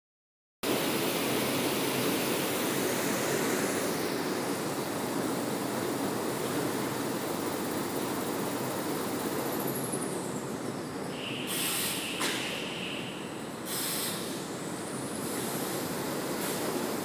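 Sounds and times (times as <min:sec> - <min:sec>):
production line machinery running: 0:00.6 - 0:17.0
short bursts of hiss: 0:11.2 - 0:17.0.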